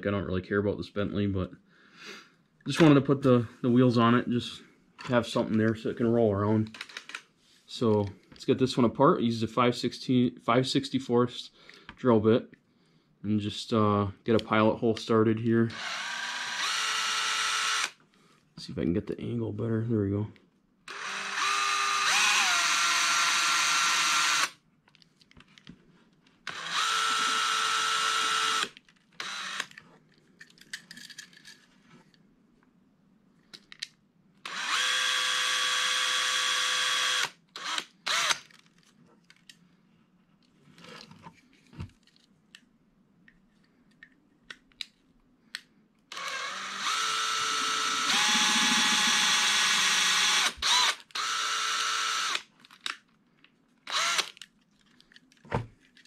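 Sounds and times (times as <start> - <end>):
cordless drill whining: 15.7 - 18.0, 20.9 - 24.6, 26.4 - 29.8, 34.4 - 38.4, 46.1 - 52.4, 53.9 - 54.4.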